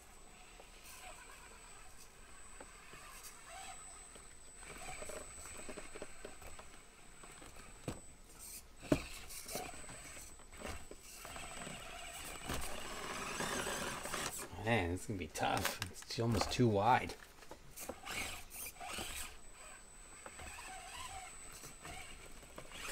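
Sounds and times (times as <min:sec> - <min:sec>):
small motor and gear whine: 0:00.0 - 0:22.9
plastic scraping and clicking on rocks: 0:15.4 - 0:19.3.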